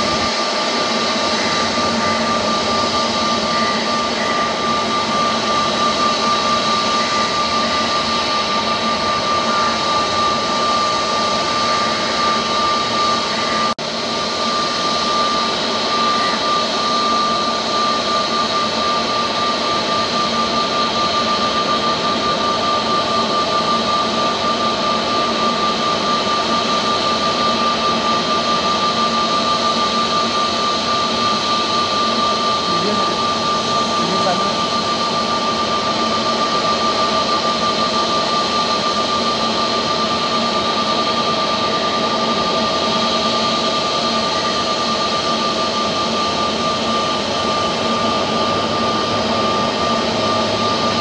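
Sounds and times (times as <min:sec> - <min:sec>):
jet engines running: 0:00.0 - 0:51.0.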